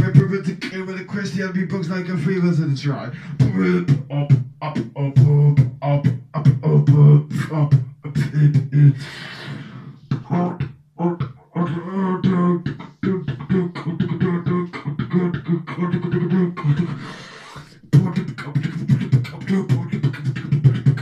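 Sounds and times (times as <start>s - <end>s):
beatboxing into a microphone: 0.0s - 21.0s.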